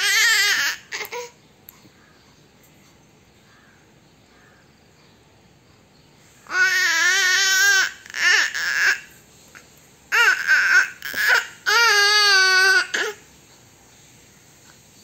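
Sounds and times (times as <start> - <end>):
baby cooing and babbling: 0.0 - 1.4, 6.5 - 9.1, 10.1 - 13.3.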